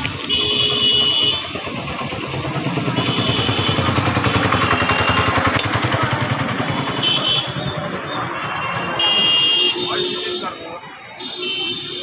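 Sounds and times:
small vehicle engine running: 0:00.0 - 0:08.8.

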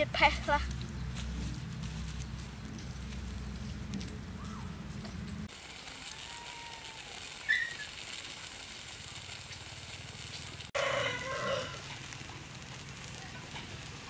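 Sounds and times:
low rumble: 0:00.0 - 0:05.5
faint bird whistles: 0:07.4 - 0:07.9.

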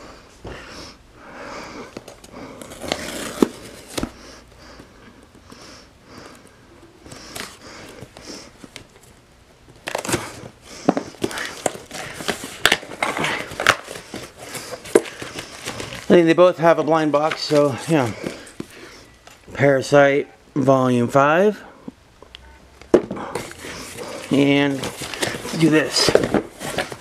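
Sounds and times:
cardboard packaging rustling: 0:01.9 - 0:04.3, 0:07.1 - 0:19.4, 0:23.0 - 0:27.0.

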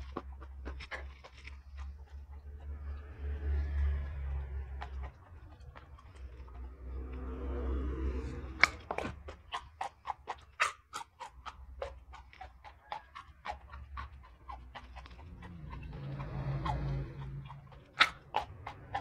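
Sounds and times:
crisp chewing crunches: 0:00.0 - 0:19.0.

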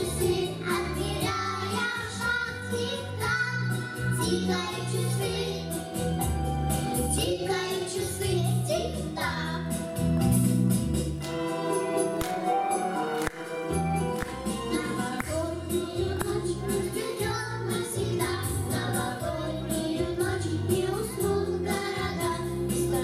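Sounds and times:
children singing into microphones: 0:00.0 - 0:06.0, 0:14.6 - 0:23.0
backing music with bass line: 0:00.0 - 0:23.0.

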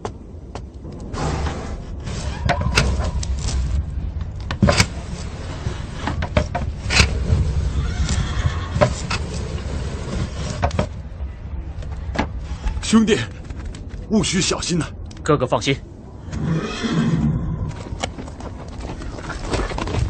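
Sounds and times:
steady low rumble: 0:00.0 - 0:20.0
hooves knocking: 0:02.0 - 0:11.0, 0:17.7 - 0:20.0.

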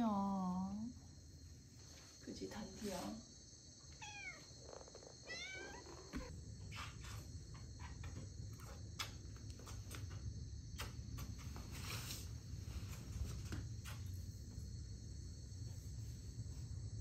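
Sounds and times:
cat meowing: 0:04.0 - 0:04.5, 0:05.2 - 0:06.3.

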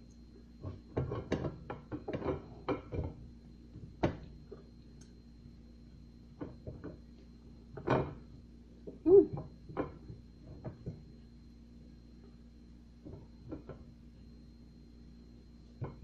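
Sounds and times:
hummed grunt: 0:09.0 - 0:09.4.

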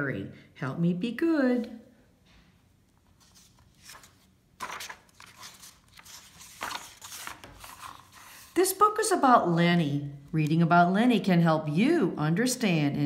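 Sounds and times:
book pages turning: 0:03.0 - 0:08.6.

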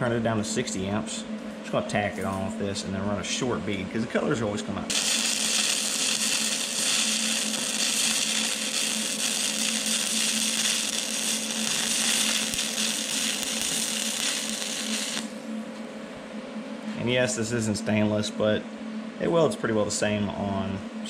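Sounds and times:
welding arc crackling hiss: 0:04.9 - 0:15.4.

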